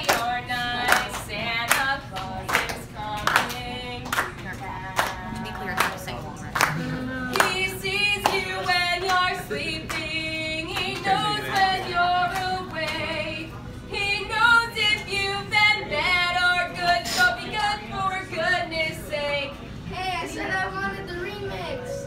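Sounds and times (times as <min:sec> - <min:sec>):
hand claps: 0:00.0 - 0:06.0, 0:06.6 - 0:09.2
woman singing: 0:00.0 - 0:20.5.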